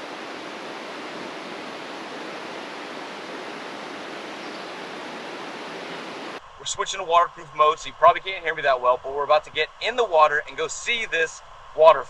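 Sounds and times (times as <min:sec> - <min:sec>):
river and waterfall rushing: 0:00.0 - 0:07.2.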